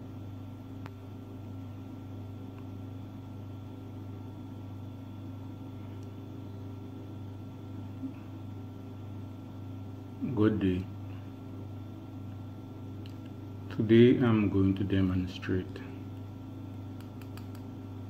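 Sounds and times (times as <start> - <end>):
appliance hum: 0.0 - 18.0
faint clicks: 17.0 - 17.7.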